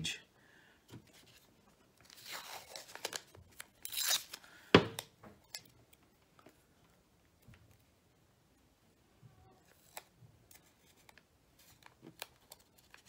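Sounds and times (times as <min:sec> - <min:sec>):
tape pulled off roll and torn: 0:02.0 - 0:05.1.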